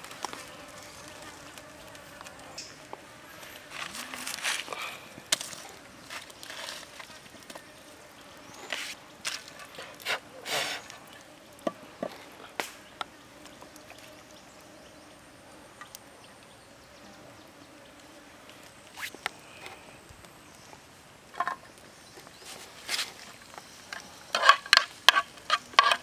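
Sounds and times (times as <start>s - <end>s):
sticks rustling: 0.0s - 7.7s, 8.6s - 11.2s, 22.2s - 26.0s
wood fire crackling: 0.0s - 16.1s, 17.9s - 26.0s.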